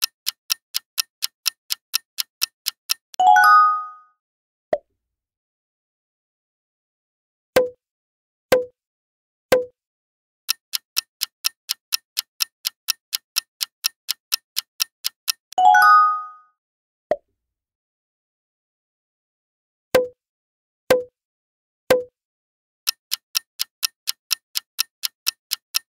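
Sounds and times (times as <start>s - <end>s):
clock countdown ticking: 0.0s - 3.2s, 10.5s - 15.6s, 22.9s - 25.9s.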